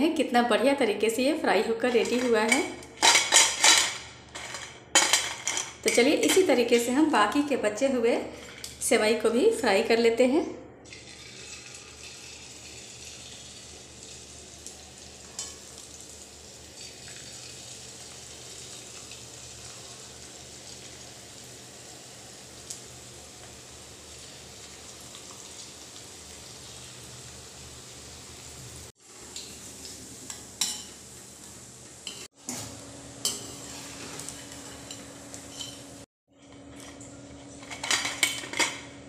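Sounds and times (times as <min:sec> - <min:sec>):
dough frying in hot oil: 0:10.9 - 0:36.1.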